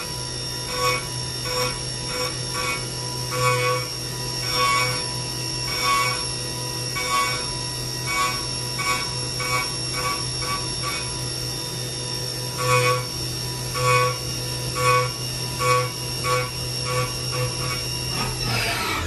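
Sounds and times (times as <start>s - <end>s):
milling machine whine: 0.0s - 19.0s
squealing cutting bursts: 0.6s - 11.2s, 12.5s - 19.0s.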